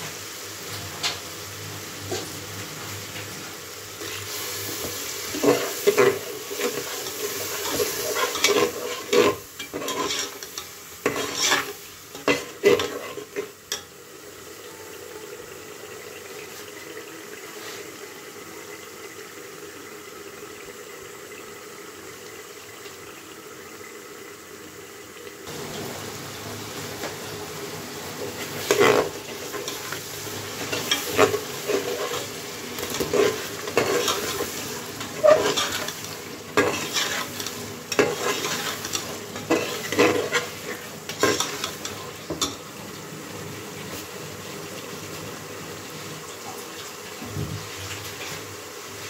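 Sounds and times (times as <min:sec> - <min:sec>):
chicken sizzling in oil: 0:00.0 - 0:49.0
spoon scraping metal pot: 0:05.3 - 0:13.5, 0:28.5 - 0:30.0, 0:30.6 - 0:42.6.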